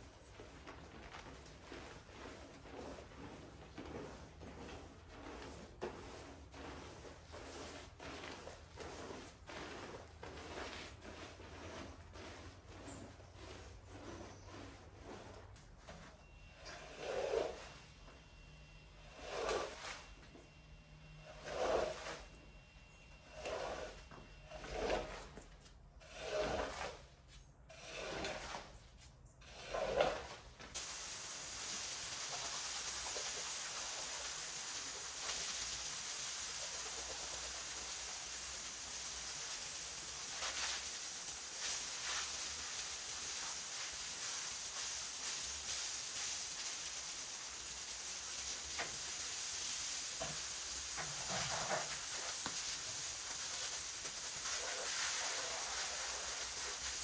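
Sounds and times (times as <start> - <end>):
squeegee dragged over wet rug: 0.0 - 57.0
pressure washer spraying water: 30.8 - 57.0.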